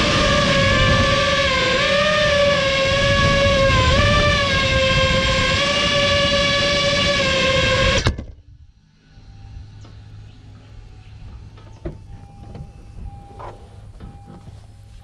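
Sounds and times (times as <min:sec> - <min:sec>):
drone motors whining: 0:00.0 - 0:14.4
low steady hum: 0:00.0 - 0:15.0.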